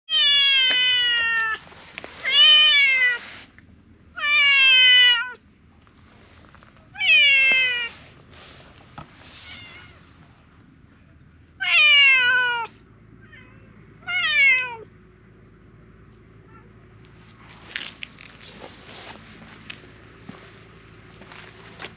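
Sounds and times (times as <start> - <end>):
cat meowing loudly: 0.1 - 3.3, 4.2 - 5.4, 6.9 - 8.0, 9.3 - 10.1, 11.6 - 14.9.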